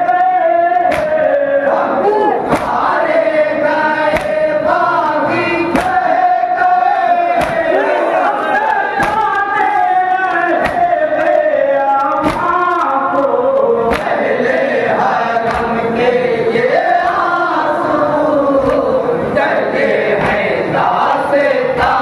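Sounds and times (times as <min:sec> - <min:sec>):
crowd of men chanting in chorus: 0:00.0 - 0:22.0
men chanting into a microphone: 0:00.0 - 0:22.0
chest-beating slaps: 0:00.8 - 0:01.3, 0:02.5 - 0:02.9, 0:04.1 - 0:04.4, 0:05.7 - 0:06.0, 0:07.3 - 0:07.7, 0:08.6 - 0:09.4, 0:10.5 - 0:11.4, 0:12.0 - 0:13.0, 0:13.8 - 0:14.3, 0:15.4 - 0:15.8, 0:20.2 - 0:20.5.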